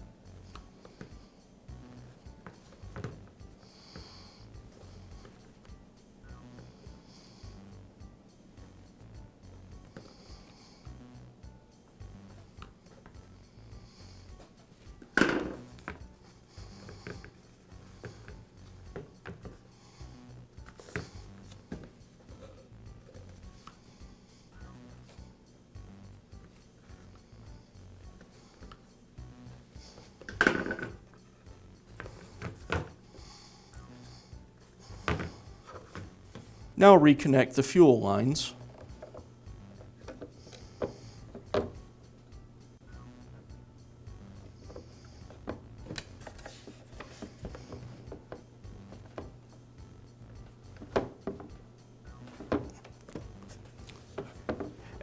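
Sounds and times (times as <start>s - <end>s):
low steady hum: 0.0s - 55.0s
plastic and rubber handling noises: 44.8s - 49.4s, 52.3s - 55.0s.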